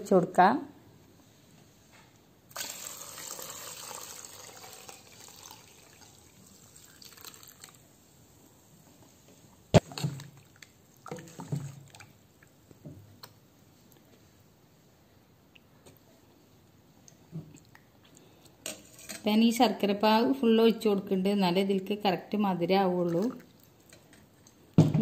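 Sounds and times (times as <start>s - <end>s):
liquid pouring into steel bowl: 2.5s - 7.8s.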